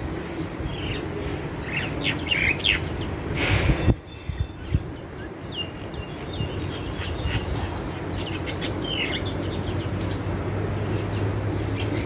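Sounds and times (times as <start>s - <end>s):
bird chirping: 4.1s - 12.0s.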